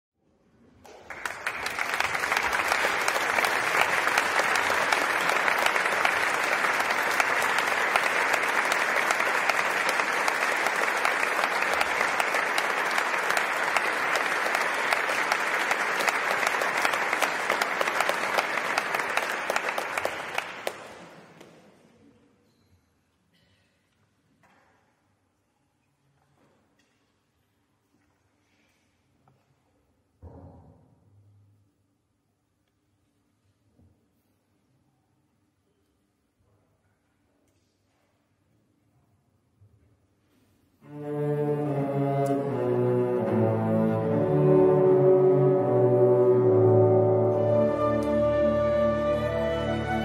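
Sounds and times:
audience applauding: 0.9s - 21.4s.

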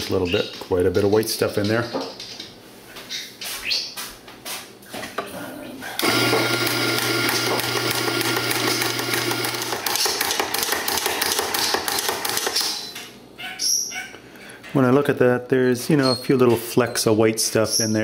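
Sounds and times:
coffee grinder grinding beans: 6.0s - 12.6s.

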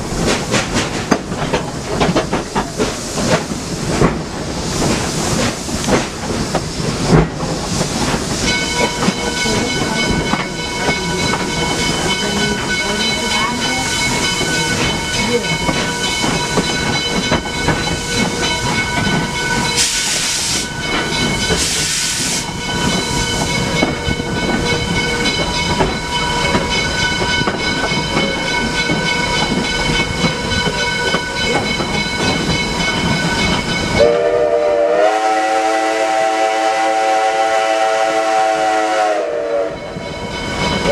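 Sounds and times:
steam locomotive hiss and rumble: 0.0s - 40.9s
bursts of louder steam hiss: 19.8s - 20.8s, 21.6s - 23.2s.

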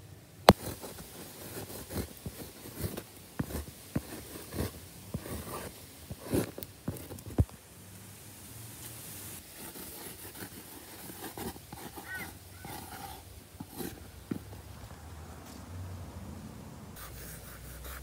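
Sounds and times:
marker tip scraping on wall: 0.5s - 7.4s, 9.4s - 14.6s.

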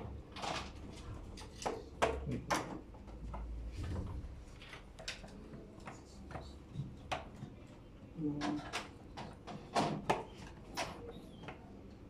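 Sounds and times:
small clicks and knocks: 4.6s - 7.6s.

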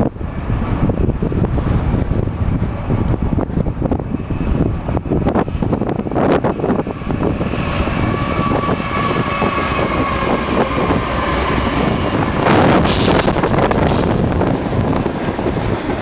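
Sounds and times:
locomotive engines rumbling: 0.0s - 16.0s
train wheels on rails: 5.3s - 16.0s
loud rushing hiss: 7.6s - 14.6s.

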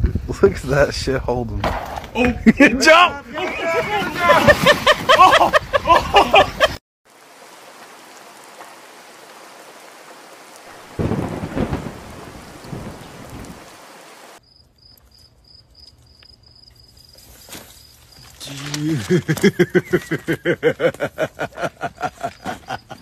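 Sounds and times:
person shouting: 2.7s - 4.5s
steady rain: 3.4s - 14.4s, 18.4s - 22.7s
crickets chirping: 7.1s - 23.0s
thunderclap rumbling: 10.7s - 14.2s.

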